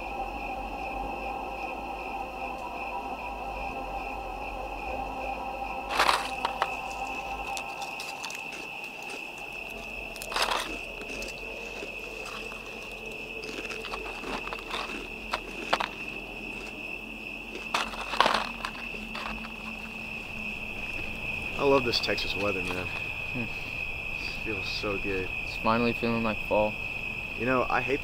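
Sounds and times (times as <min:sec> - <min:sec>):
crickets chirring: 0:00.0 - 0:28.0
sharp crackles: 0:05.9 - 0:16.8, 0:17.5 - 0:21.1.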